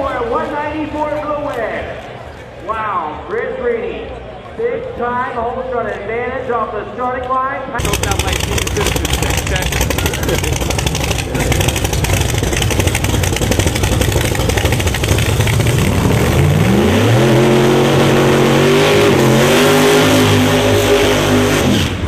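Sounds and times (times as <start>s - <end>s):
drag car engine revving: 7.8s - 22.0s.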